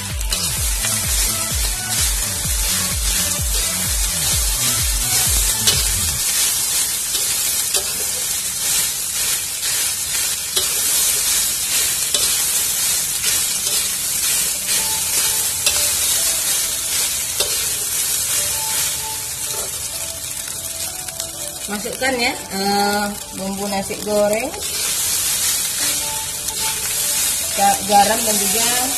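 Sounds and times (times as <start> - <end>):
rice sizzling in a wok: 0.0 - 28.9
metal spatula scraping a pan: 5.6 - 19.8, 24.5 - 28.9.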